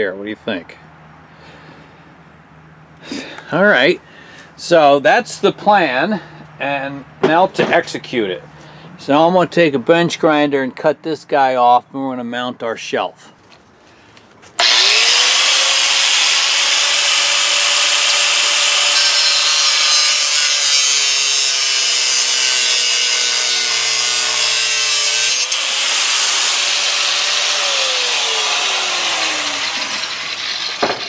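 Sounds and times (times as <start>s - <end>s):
angle grinder cutting steel: 14.6s - 31.0s.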